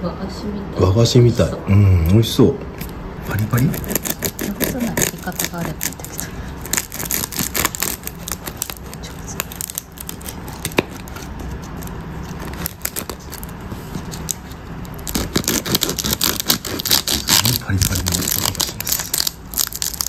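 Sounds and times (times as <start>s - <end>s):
knife sawing through crispy pastry: 3.2s - 20.0s.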